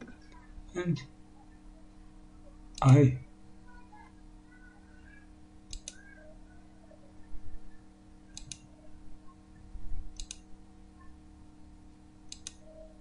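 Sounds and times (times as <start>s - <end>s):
steady low hum: 0.0s - 13.0s
mouse button clicking: 5.7s - 6.0s, 8.3s - 8.6s, 10.2s - 10.4s, 12.3s - 12.7s.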